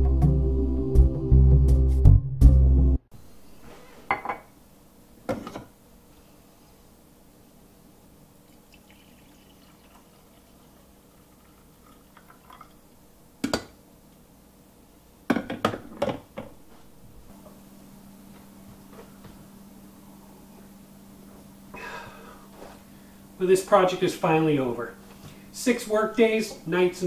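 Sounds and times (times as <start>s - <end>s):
coffee pouring into a mug: 8.4s - 12.9s.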